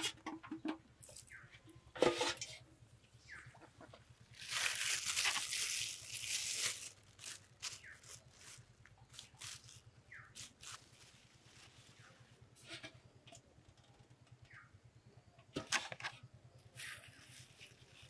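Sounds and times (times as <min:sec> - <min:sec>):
plastic bag crinkling: 0:04.3 - 0:12.4, 0:16.8 - 0:18.0.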